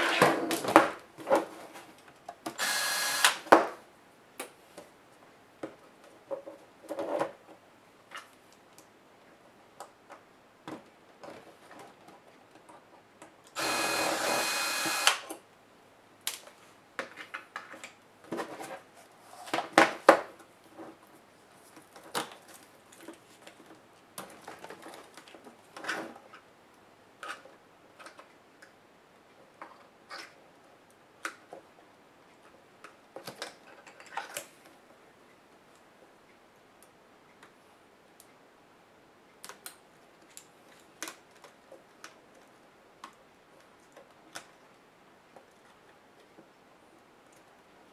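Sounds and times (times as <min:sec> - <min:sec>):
electric screwdriver running: 0:02.6 - 0:03.4, 0:13.6 - 0:15.2.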